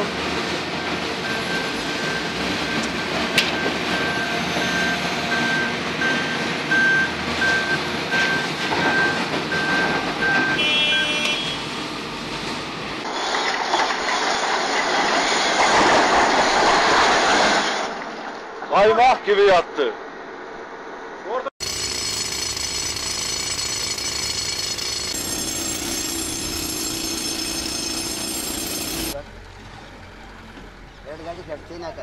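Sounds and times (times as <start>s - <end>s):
heavy machinery diesel engines: 0.0s - 17.8s, 21.6s - 32.0s
reversing alarm beeping: 0.8s - 11.7s, 21.6s - 29.2s.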